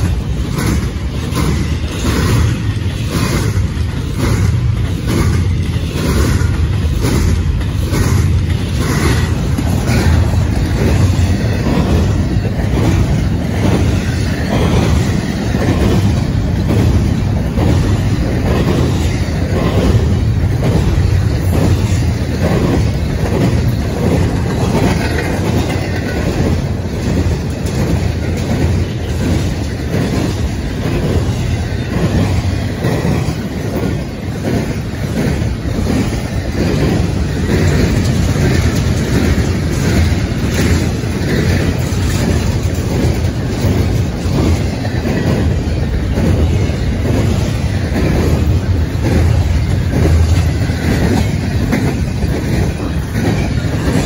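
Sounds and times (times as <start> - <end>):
low train rumble: 0.0 - 54.0
train wheels clickety-clack: 0.0 - 54.0.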